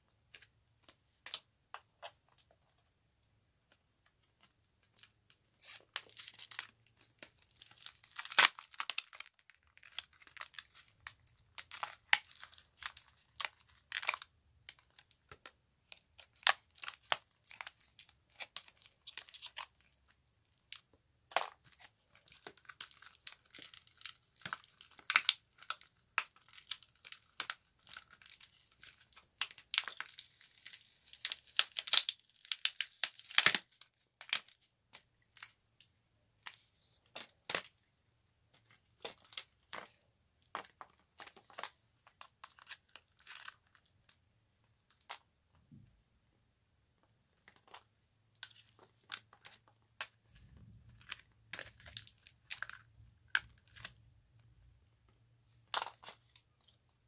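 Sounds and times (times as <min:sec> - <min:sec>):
adhesive tape crackling and tearing: 0:05.6 - 0:10.8, 0:26.4 - 0:33.8.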